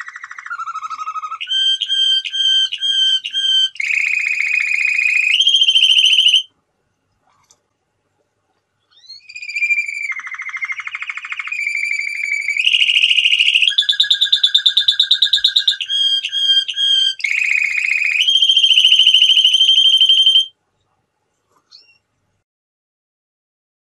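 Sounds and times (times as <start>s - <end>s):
canary singing trills: 0.0s - 6.5s, 8.9s - 20.5s, 21.7s - 22.1s.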